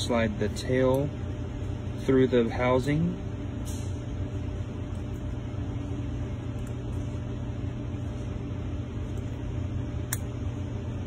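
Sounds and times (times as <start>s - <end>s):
low background hum: 0.0s - 11.0s.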